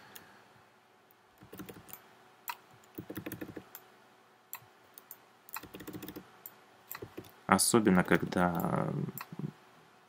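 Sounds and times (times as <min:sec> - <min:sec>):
computer keys clicking: 0:01.4 - 0:03.8, 0:04.6 - 0:07.4.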